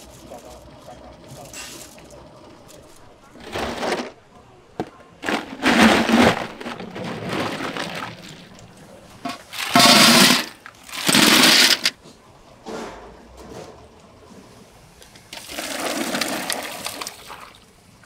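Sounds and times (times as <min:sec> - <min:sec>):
ice cubes clattering into metal: 0:02.6 - 0:04.2, 0:04.8 - 0:12.0, 0:15.3 - 0:17.4.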